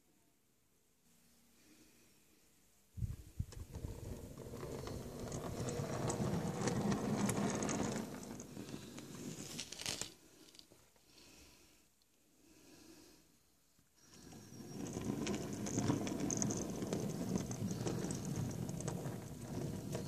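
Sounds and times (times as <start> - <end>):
model train wheels rattling on rails: 3.6 - 9.5, 14.2 - 20.0.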